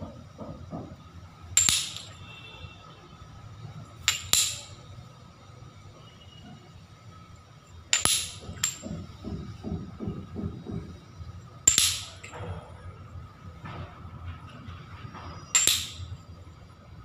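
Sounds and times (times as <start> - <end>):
ceramic tiles clinking: 1.6 - 2.3, 4.0 - 4.8, 7.9 - 9.2, 11.7 - 12.4, 15.5 - 16.2.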